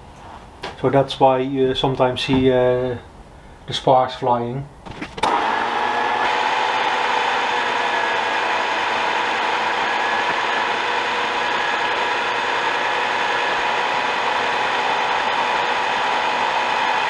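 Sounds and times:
milling machine whirring and grinding: 0:05.2 - 0:17.0.

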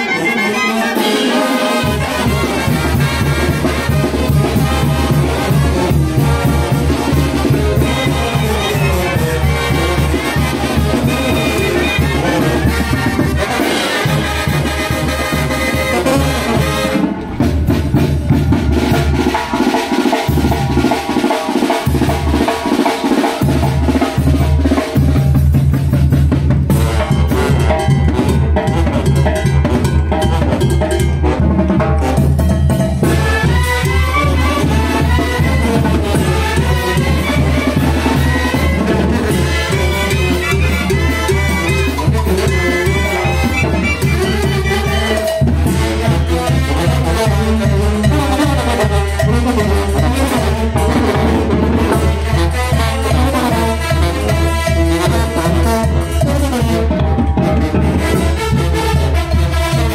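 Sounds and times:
brass band playing: 0:00.0 - 0:59.9
drums: 0:00.0 - 0:59.9
horns: 0:00.0 - 0:59.9
bass line: 0:01.4 - 0:21.0, 0:33.0 - 0:47.6.

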